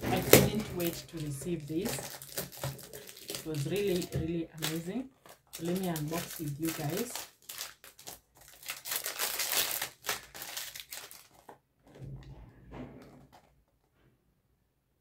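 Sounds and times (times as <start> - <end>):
plastic shrink-wrap crackling: 0.0 - 11.6.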